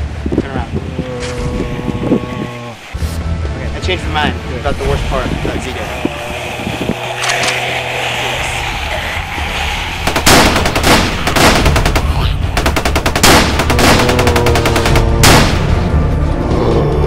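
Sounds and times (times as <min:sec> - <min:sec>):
low music drone: 0:00.0 - 0:17.0
sustained tones: 0:01.4 - 0:11.3
rapid automatic gunfire: 0:10.0 - 0:15.8.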